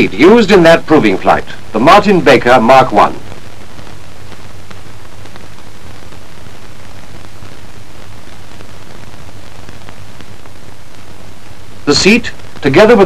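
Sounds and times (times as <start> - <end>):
film soundtrack hiss and hum: 0.0 - 13.0
faint crackling clicks: 3.2 - 12.7.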